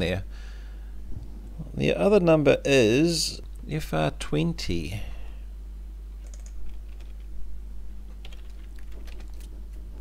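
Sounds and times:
steady low hum: 0:00.0 - 0:10.0
typing on computer keyboard: 0:06.2 - 0:07.2, 0:08.2 - 0:09.5.

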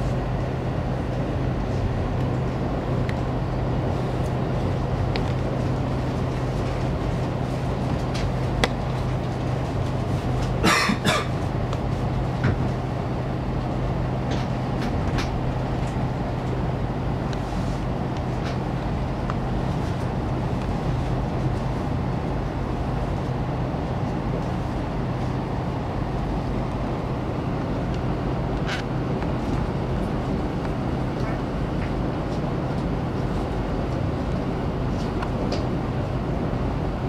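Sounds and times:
low hum: 0:00.0 - 0:10.7, 0:11.4 - 0:37.0
train cabin rumble: 0:00.0 - 0:37.0.

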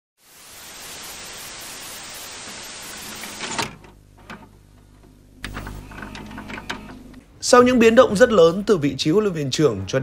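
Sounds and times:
static hiss: 0:00.2 - 0:04.4.

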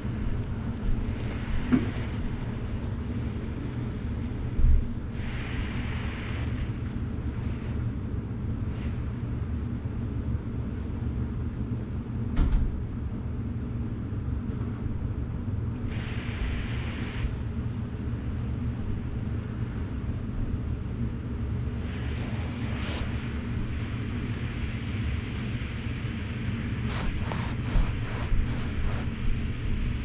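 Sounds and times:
cleaning machine rumbling: 0:21.8 - 0:29.2.

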